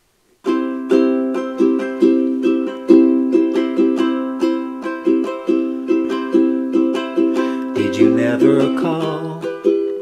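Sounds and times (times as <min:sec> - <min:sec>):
ukulele strumming: 0:00.4 - 0:10.0.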